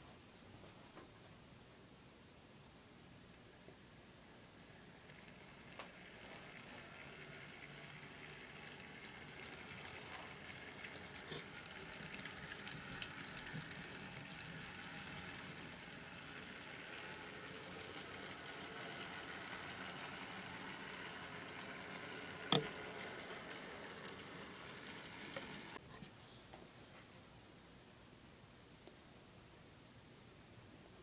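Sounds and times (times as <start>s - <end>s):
model train wheels hissing on rail: 4.8s - 25.8s.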